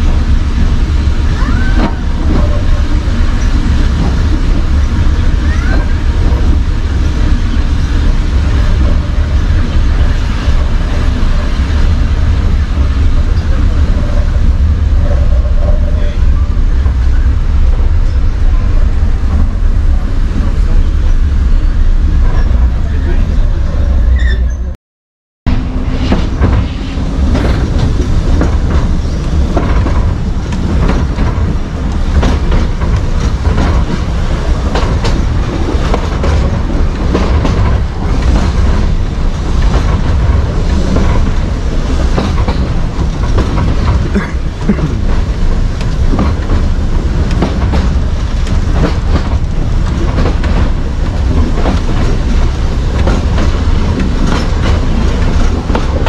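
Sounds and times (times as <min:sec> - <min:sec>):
tram body rattling: 0:00.0 - 0:24.8, 0:25.5 - 0:56.0
tram low rumble: 0:00.0 - 0:24.8, 0:25.4 - 0:56.0
wheels clicking over rail joints: 0:26.1 - 0:56.0.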